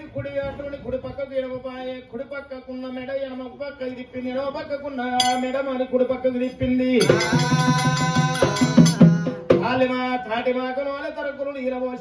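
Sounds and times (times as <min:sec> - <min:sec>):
drum and hand cymbals: 0:06.5 - 0:10.2
person singing: 0:07.0 - 0:09.7.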